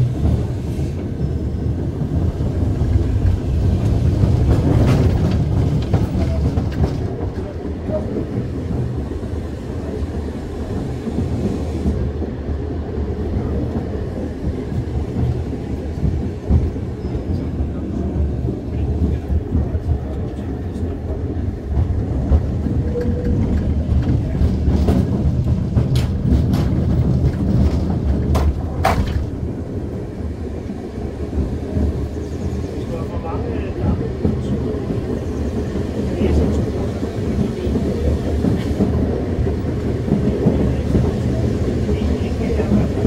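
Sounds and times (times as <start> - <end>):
tram wheels rumbling on track: 0.0 - 43.0
knocks and clatter: 21.7 - 29.4.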